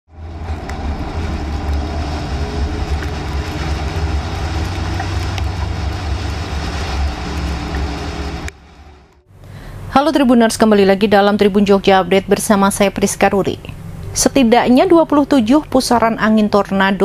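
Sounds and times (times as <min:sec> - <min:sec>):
road and wind noise inside vehicle: 0:00.1 - 0:09.2.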